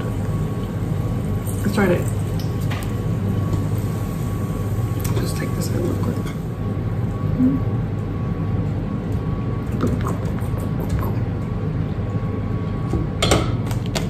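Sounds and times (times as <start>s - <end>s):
hot oil bubbling in a fryer: 0.0s - 11.1s.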